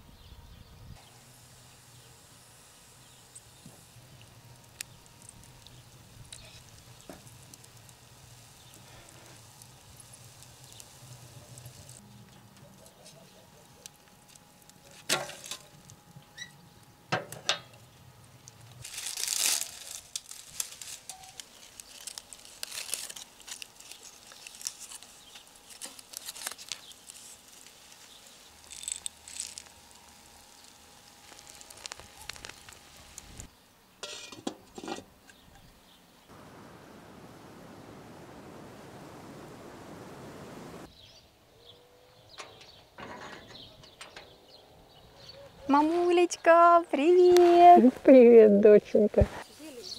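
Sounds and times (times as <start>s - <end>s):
clattering rustle: 14.9s - 15.8s, 34.0s - 35.4s, 42.3s - 44.4s
metal lid clinking: 34.0s - 35.1s.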